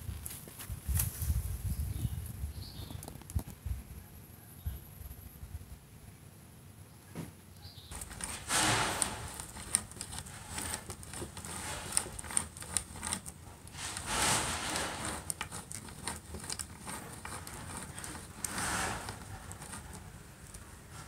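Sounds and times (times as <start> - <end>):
hand drill boring into wood: 7.9 - 20.6.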